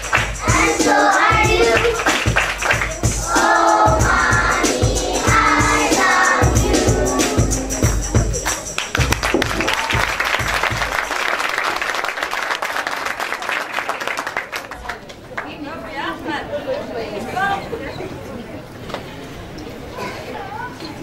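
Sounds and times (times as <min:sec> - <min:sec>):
backing track with steady beat: 0:00.0 - 0:11.0
children's choir singing: 0:00.2 - 0:02.3, 0:03.0 - 0:08.1
audience applauding: 0:01.8 - 0:03.0, 0:08.7 - 0:15.6.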